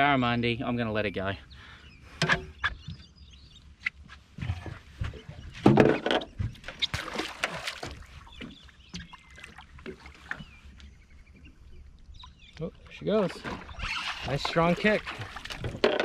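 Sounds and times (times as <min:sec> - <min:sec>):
water splashing: 0:06.6 - 0:10.9, 0:11.7 - 0:16.0.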